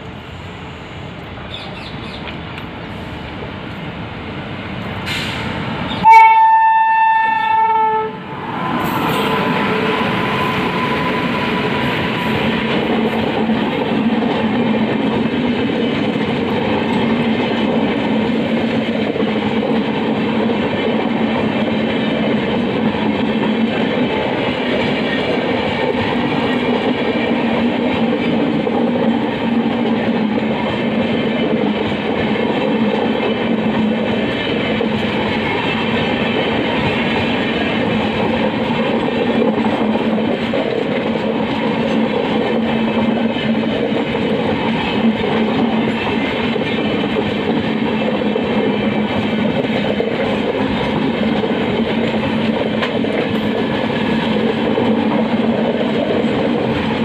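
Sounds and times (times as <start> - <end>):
passenger train rolling past: 0.0 - 57.0
train horn blast: 6.0 - 11.8.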